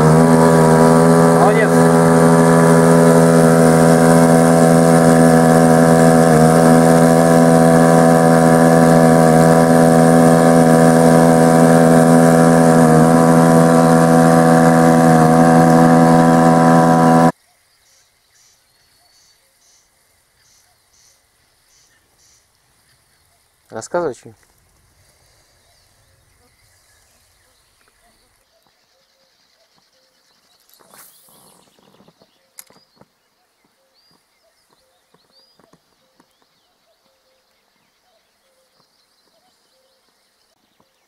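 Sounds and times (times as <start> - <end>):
motor running steadily: 0.0 - 17.3.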